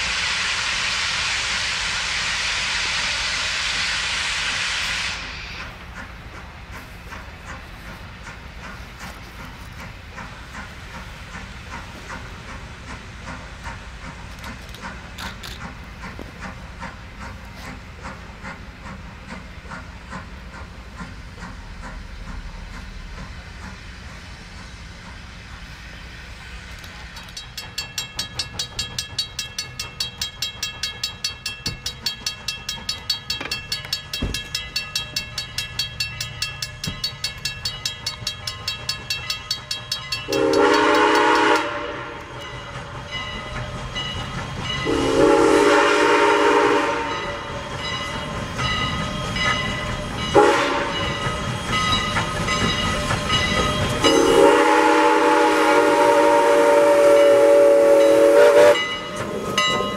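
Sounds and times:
steam locomotive exhaust beats: 0:00.0 - 0:59.9
bell ringing: 0:27.2 - 0:40.8
steam whistle blasts: 0:40.3 - 0:42.3, 0:44.8 - 0:47.6, 0:50.3 - 0:51.1, 0:54.0 - 0:59.7.

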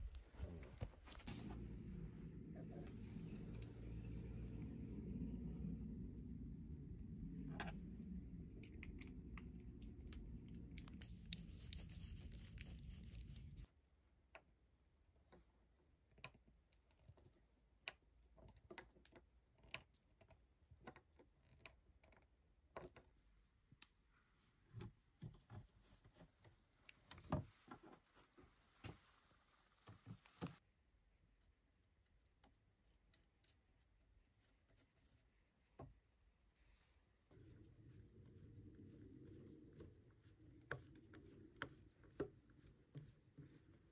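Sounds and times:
low rumble: 0:00.0 - 0:13.7.

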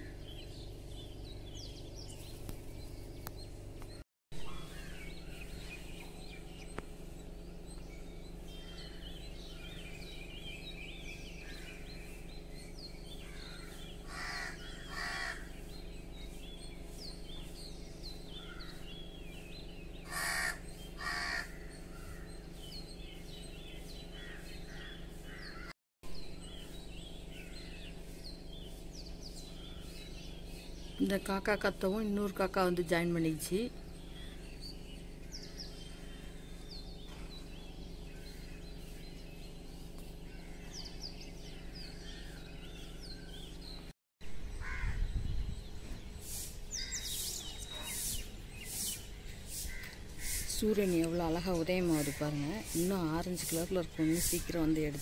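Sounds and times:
small birds chirping: 0:00.0 - 0:55.0
crows cawing: 0:13.2 - 0:15.5, 0:20.1 - 0:22.2, 0:44.6 - 0:45.0.

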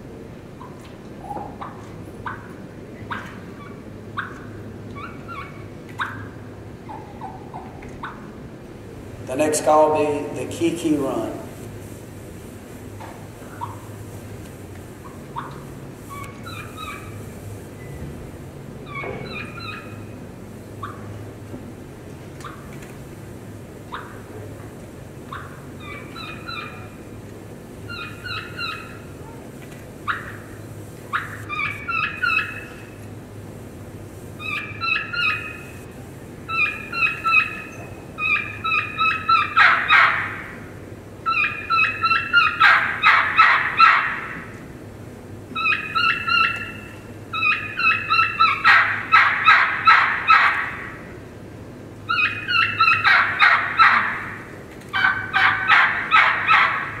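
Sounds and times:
yelping turkey call notes: 0:03.1 - 0:08.3, 0:13.5 - 0:13.9, 0:15.0 - 0:17.2, 0:18.9 - 0:20.1, 0:20.8 - 0:21.1, 0:23.9 - 0:24.3, 0:25.2 - 0:27.0, 0:27.9 - 0:29.2, 0:30.0 - 0:32.9, 0:34.4 - 0:35.8, 0:36.5 - 0:44.4, 0:45.6 - 0:51.0, 0:52.1 - 0:57.0
high whistled turkey call notes: 0:15.1 - 0:17.2, 0:18.9 - 0:20.0, 0:25.3 - 0:26.9, 0:31.1 - 0:32.8, 0:34.4 - 0:35.8, 0:36.5 - 0:40.3, 0:45.6 - 0:50.5, 0:52.1 - 0:54.0.

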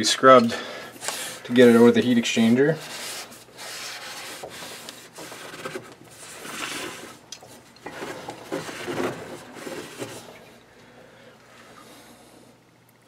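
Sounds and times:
cloth rag wiping metal: 0:01.1 - 0:07.2.

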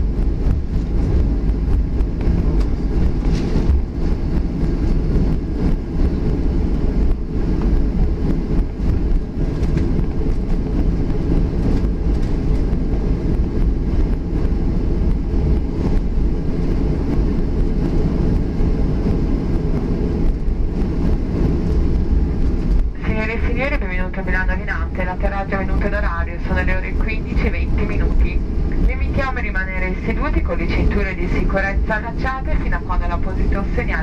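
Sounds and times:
aircraft engines rumbling: 0:00.0 - 0:34.0.

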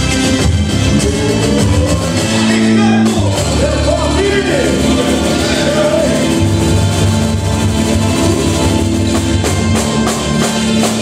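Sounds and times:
live band drums and bass: 0:00.0 - 0:11.0
person singing: 0:00.8 - 0:07.4.

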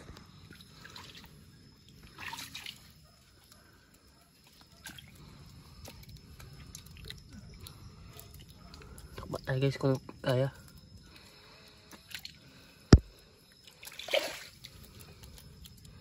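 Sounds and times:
hands splashing shallow water and mud: 0:02.0 - 0:02.9, 0:13.0 - 0:15.0.

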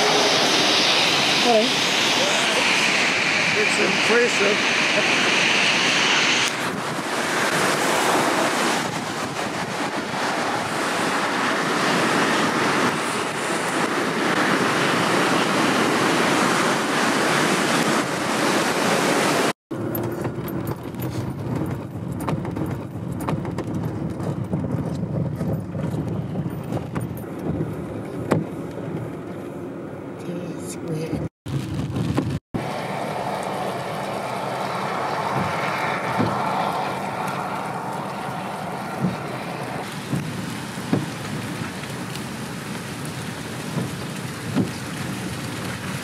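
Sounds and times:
rushing floodwater: 0:03.5 - 0:19.6, 0:32.6 - 0:46.0
vehicle driving through water: 0:32.6 - 0:46.0.

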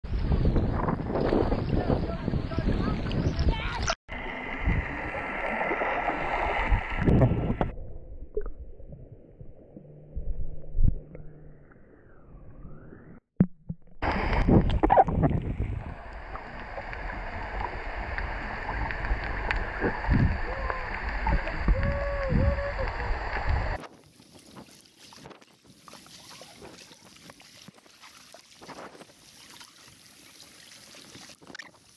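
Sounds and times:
underwater sea noise: 0:02.8 - 0:13.2, 0:14.0 - 0:24.4
gurgling bubbles: 0:14.0 - 0:23.8.

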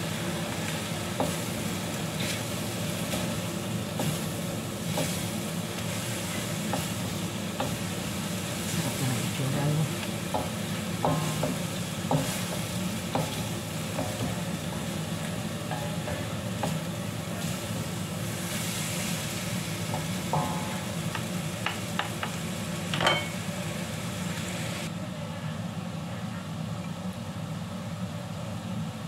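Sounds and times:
noodles sizzling in a wok: 0:00.0 - 0:24.9
spatula knocking against wok: 0:07.5 - 0:07.9, 0:10.2 - 0:14.6, 0:15.6 - 0:16.9, 0:19.9 - 0:23.4
low hum: 0:20.2 - 0:21.6.

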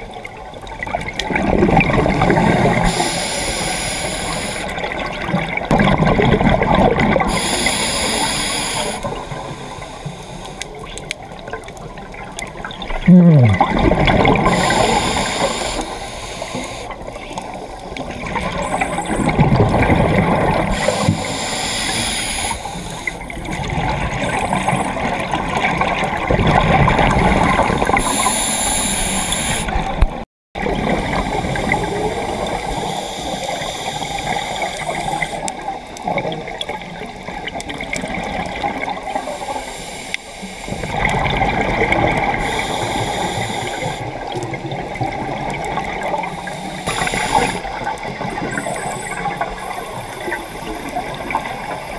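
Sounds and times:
exhaled bubbles gurgling: 0:00.0 - 0:39.7, 0:40.4 - 0:51.9
scuba regulator breathing: 0:02.7 - 0:04.8, 0:07.2 - 0:10.8, 0:13.1 - 0:17.2, 0:20.7 - 0:23.3, 0:27.9 - 0:29.9, 0:30.8 - 0:35.5, 0:39.1 - 0:41.1, 0:42.3 - 0:44.2, 0:46.2 - 0:51.9.

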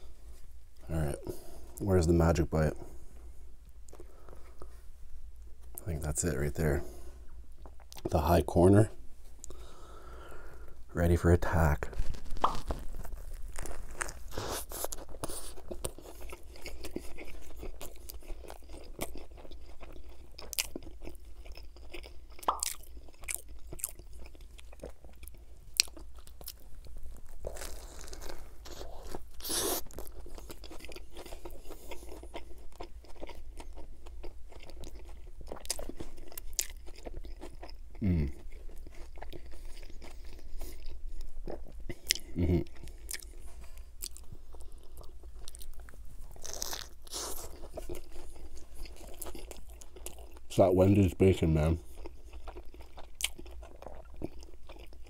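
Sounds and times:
biting and chewing: 0:11.8 - 0:50.5, 0:51.2 - 0:55.0
person humming: 0:38.0 - 0:38.3.

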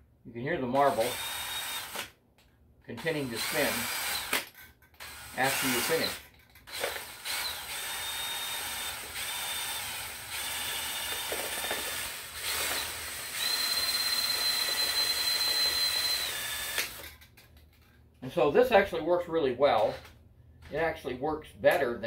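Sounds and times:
cordless drill motor whining: 0:00.8 - 0:02.1, 0:03.3 - 0:17.2.

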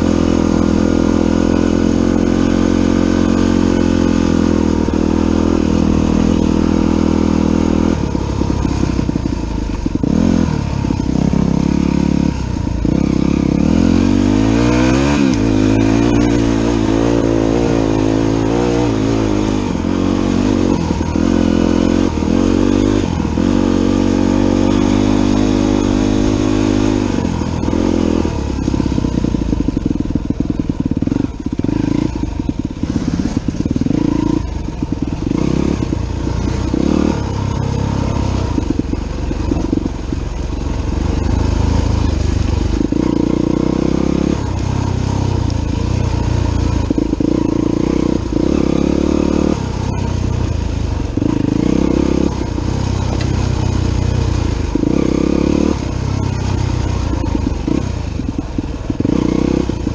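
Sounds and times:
dirt bike engine: 0:00.0 - 0:59.9.

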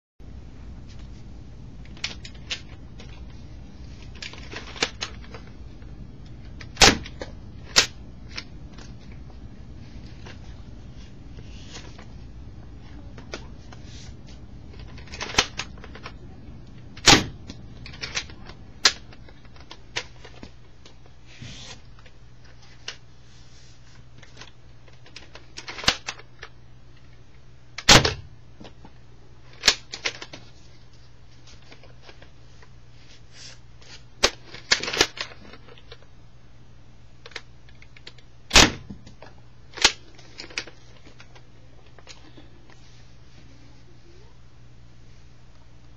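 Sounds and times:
steady low hum: 0:00.2 - 0:45.9
loud plastic snaps: 0:06.6 - 0:08.9, 0:14.7 - 0:16.1, 0:17.0 - 0:20.5, 0:24.4 - 0:26.5, 0:27.8 - 0:28.3, 0:29.6 - 0:30.4.

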